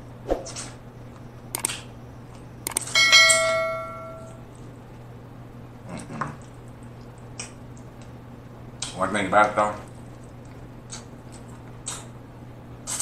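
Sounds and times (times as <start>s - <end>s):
sharp clicks: 1.5s - 1.9s, 2.6s - 2.9s
bright bell chime: 3.0s - 4.3s
soft chewing: 4.3s - 5.1s, 5.8s - 8.2s, 9.8s - 12.1s.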